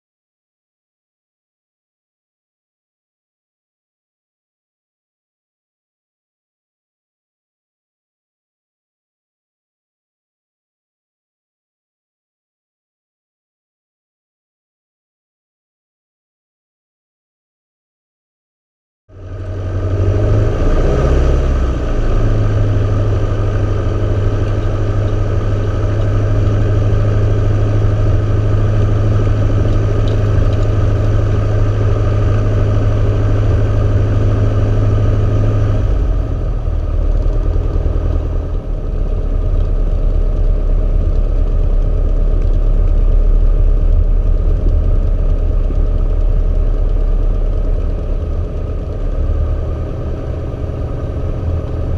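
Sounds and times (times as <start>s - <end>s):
propeller plane engine running: 19.1s - 51.9s.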